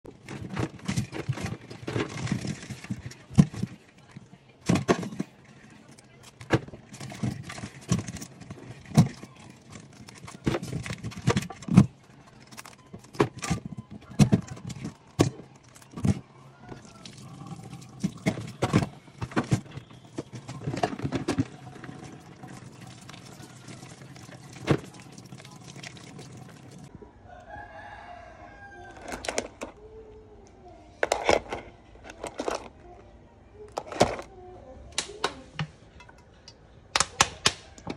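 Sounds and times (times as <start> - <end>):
tap running: 12.5 - 26.9
chickens clucking and crowing: 13.8 - 15.4, 26.7 - 30.1.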